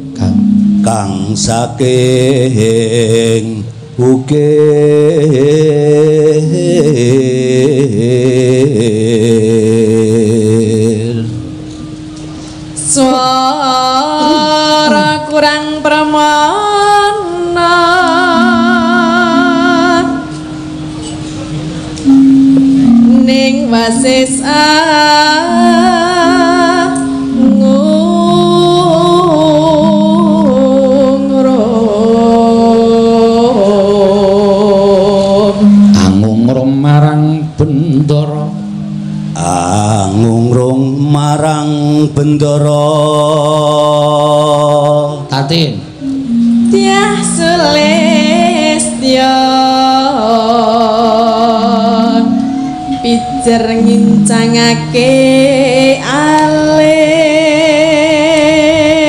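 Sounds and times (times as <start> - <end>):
gamelan playing held notes: 0.0 - 1.6, 17.9 - 33.8, 38.2 - 40.7, 42.6 - 57.1
accompanying music: 0.0 - 2.9, 5.2 - 59.0
woman singing long wavering notes: 0.0 - 3.4, 12.8 - 21.2, 21.9 - 36.3, 37.4 - 45.3, 46.0 - 59.0.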